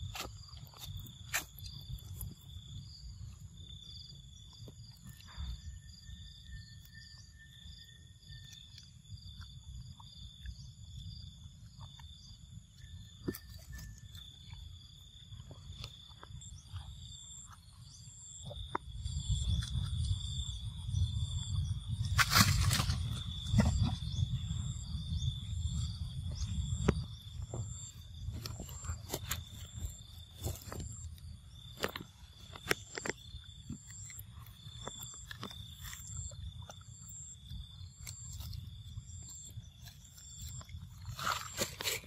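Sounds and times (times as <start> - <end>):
low wind-like rumble: 0.0 - 42.0
steady high insect drone: 0.0 - 42.0
clicks and rustles of monkeys: 26.4 - 37.2, 37.9 - 42.0.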